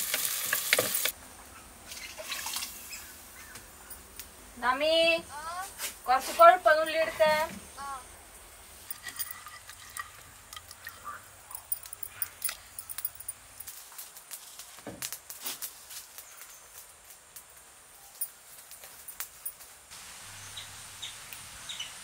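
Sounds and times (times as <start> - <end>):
firewood crackling and popping: 0.0 - 1.2, 8.8 - 19.9.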